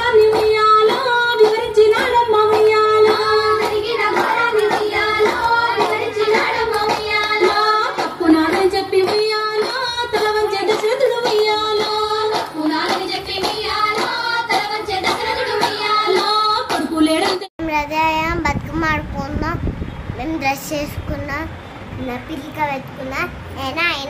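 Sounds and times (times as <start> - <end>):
people singing a folk song: 0.0 - 17.4
hand-clapping beat: 0.0 - 17.5.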